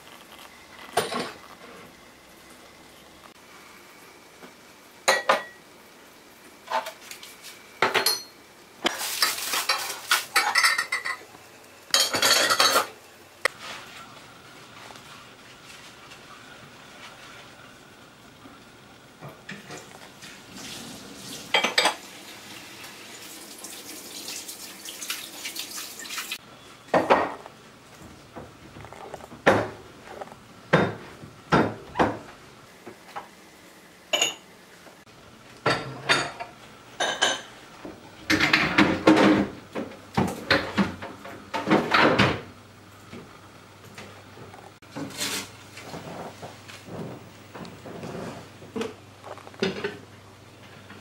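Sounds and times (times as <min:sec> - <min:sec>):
glass dishes clinking: 0:05.1 - 0:05.6, 0:07.8 - 0:08.4, 0:10.4 - 0:11.2, 0:12.0 - 0:12.9, 0:21.5 - 0:22.0, 0:34.1 - 0:34.4, 0:35.7 - 0:37.5.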